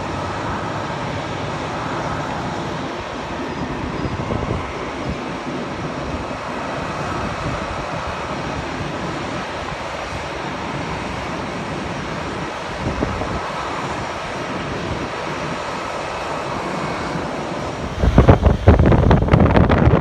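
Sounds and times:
distant jet engine noise: 0.0 - 20.0
wind buffeting microphone: 0.0 - 20.0
faint whine: 15.6 - 20.0.

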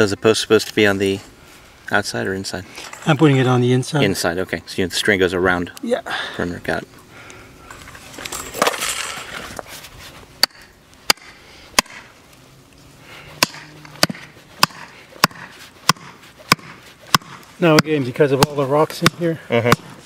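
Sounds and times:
rustling scrape: 7.7 - 10.3, 14.2 - 17.6
hammer striking wood: 10.4 - 12.1, 13.4 - 20.0.

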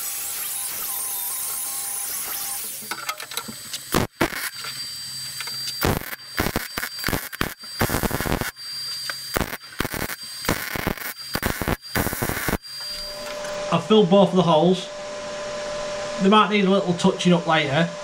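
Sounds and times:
welder arc crackling and hissing: 0.0 - 13.6.

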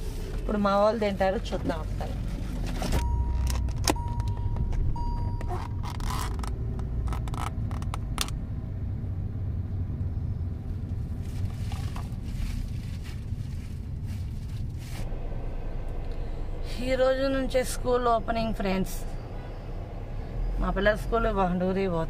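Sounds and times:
low car rumble: 0.0 - 22.0
plastic bag rustling: 11.2 - 15.1.

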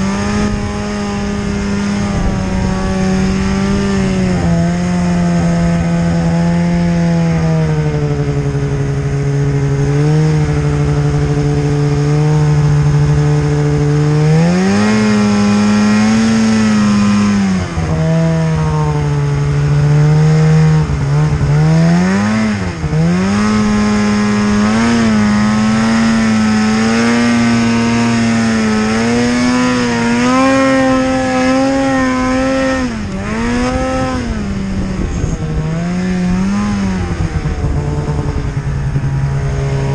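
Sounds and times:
snowmobile engine revving: 0.0 - 39.9.

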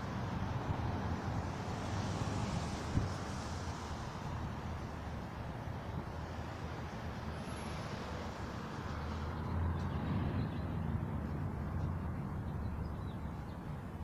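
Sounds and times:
road traffic rumble: 0.0 - 14.0
vehicle passing: 7.6 - 12.9.

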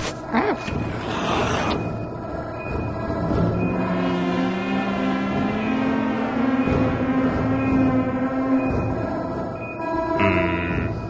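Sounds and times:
background music held notes: 2.1 - 11.0.

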